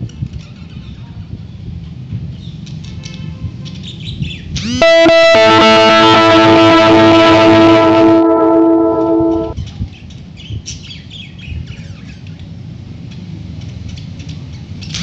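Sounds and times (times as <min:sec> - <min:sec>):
loud guitar chord: 0:04.8 - 0:09.6.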